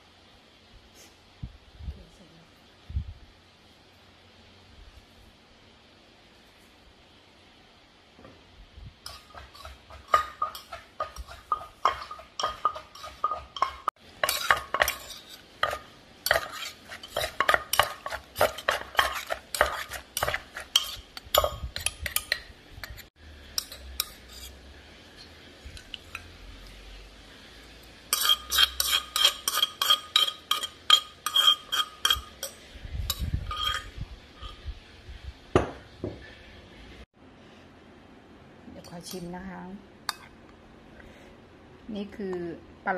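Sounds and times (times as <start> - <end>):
metal spoon clinking and scraping: 9.0 - 24.6, 28.1 - 34.7
wooden pestle pounding in mortar: 9.3 - 15.0.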